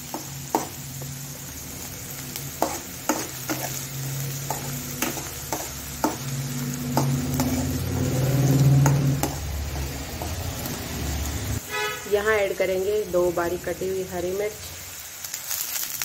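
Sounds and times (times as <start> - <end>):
onions sizzling in oil: 0.0 - 16.0
utensils knocking against pan: 2.6 - 3.8, 4.4 - 10.4.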